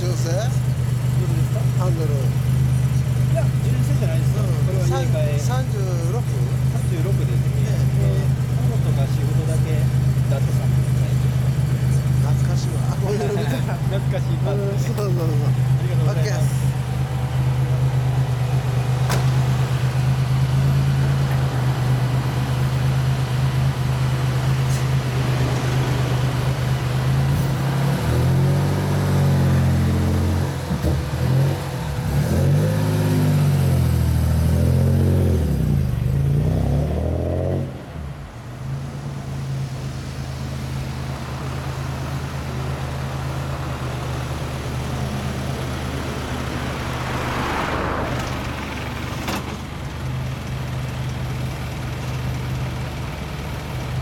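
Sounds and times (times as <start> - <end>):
car engine idling and revving: 0.0 - 54.0.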